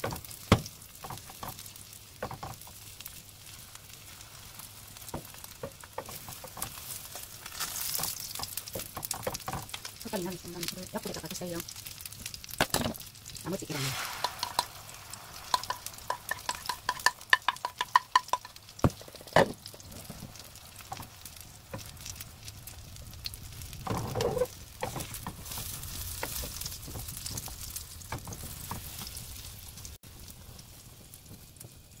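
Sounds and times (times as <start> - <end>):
eggs sizzling in a frying pan: 0.0 - 32.0
wooden spoon tapping a pan: 2.2 - 2.8, 14.2 - 14.7, 15.5 - 19.6.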